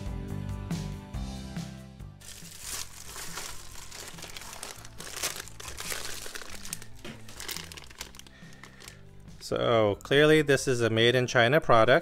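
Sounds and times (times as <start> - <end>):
background music: 0.0 - 12.0
plastic bag crinkling: 2.2 - 9.2.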